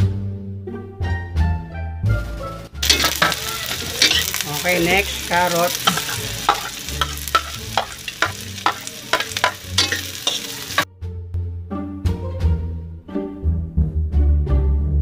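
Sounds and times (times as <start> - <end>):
background music: 0.0 - 15.0
vegetables sizzling in oil: 2.7 - 10.9
metal spoon scraping a pan: 2.8 - 10.9.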